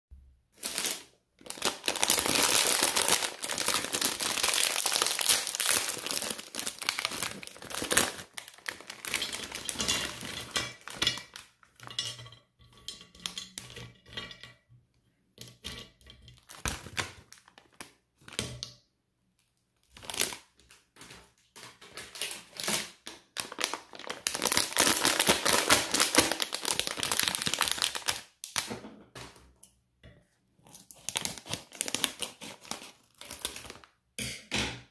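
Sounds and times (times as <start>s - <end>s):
plastic packets crinkling: 0.6s - 11.9s, 16.4s - 18.4s, 19.8s - 28.7s, 30.7s - 34.0s.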